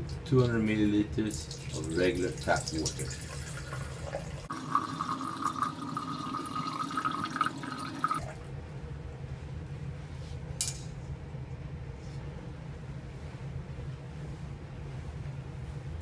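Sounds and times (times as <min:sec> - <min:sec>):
low steady hum: 0:00.0 - 0:16.0
water pouring into a glass: 0:01.3 - 0:08.4.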